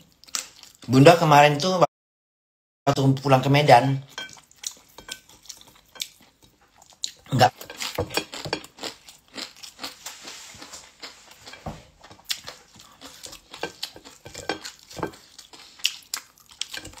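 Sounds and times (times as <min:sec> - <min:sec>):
chewing and lip smacks: 0:04.3 - 0:10.0, 0:10.6 - 0:17.0.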